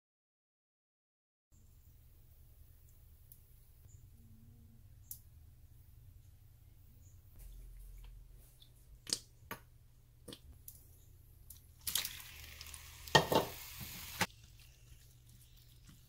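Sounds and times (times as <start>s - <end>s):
chicken sizzling in hot oil: 11.8s - 16.0s
pieces thudding into pan: 13.1s - 14.3s.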